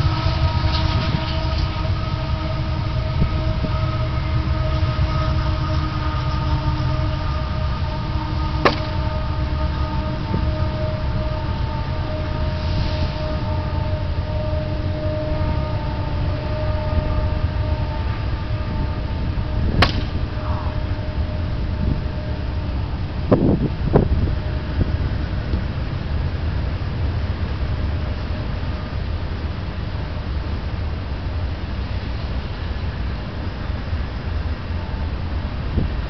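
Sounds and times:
droning hum: 0.0 - 36.0
low rumble: 0.0 - 36.0
plastic bat hitting ball: 19.8 - 20.1.

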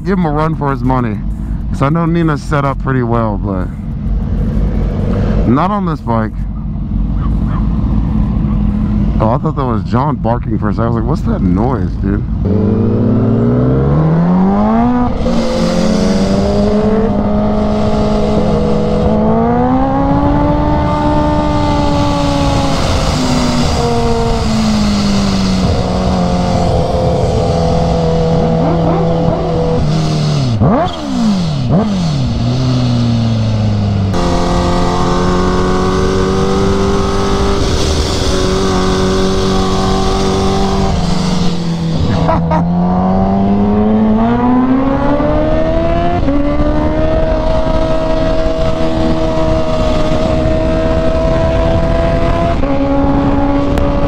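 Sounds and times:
motorcycle engine revving: 0.0 - 54.0
wind rush: 12.2 - 54.0.

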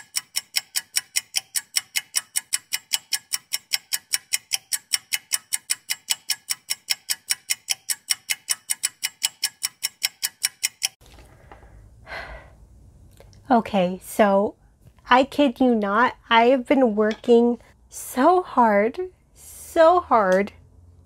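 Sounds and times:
clock ticking: 0.0 - 11.0.

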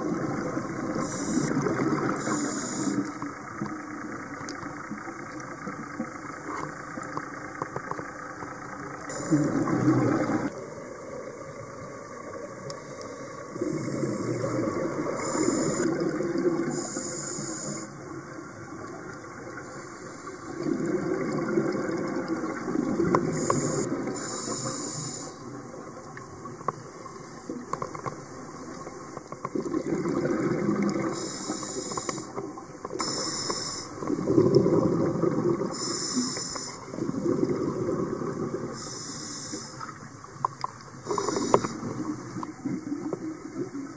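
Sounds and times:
exhaled bubbles gushing: 0.0 - 4.2, 9.0 - 10.6, 13.5 - 17.2, 20.4 - 24.4, 28.8 - 31.3, 33.9 - 35.9, 36.8 - 38.8
regulator hissing inhales: 2.2 - 3.2, 15.2 - 15.9, 16.8 - 18.0, 23.4 - 25.5, 31.1 - 32.3, 33.0 - 34.0, 35.7 - 36.9, 38.7 - 39.9, 41.1 - 41.9.

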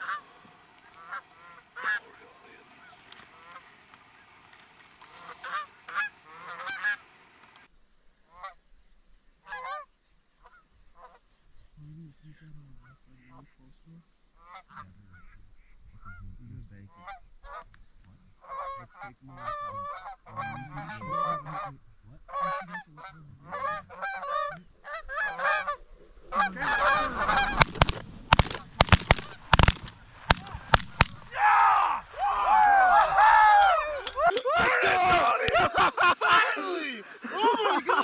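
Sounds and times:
geese honking: 0.0 - 7.2, 9.4 - 11.2, 18.4 - 38.0
shotgun blasts: 26.6 - 31.4.

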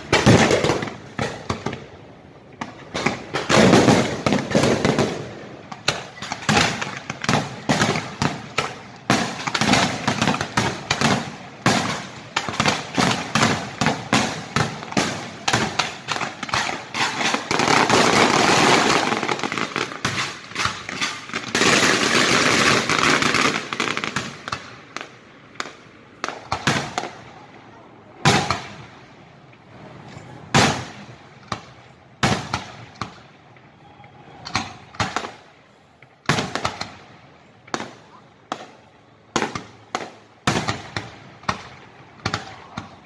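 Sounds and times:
dense firework crackling: 0.0 - 29.2.

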